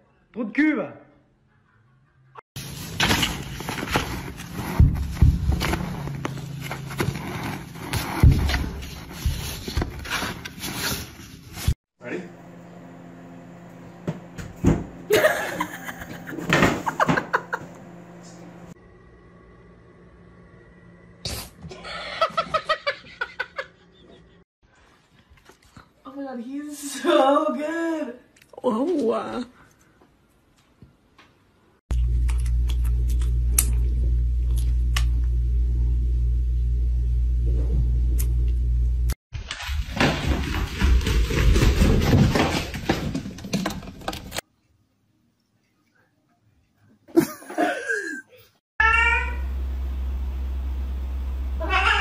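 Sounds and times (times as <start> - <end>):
person laughing: 15.1 - 17.8, 21.7 - 24.4, 47.1 - 48.5.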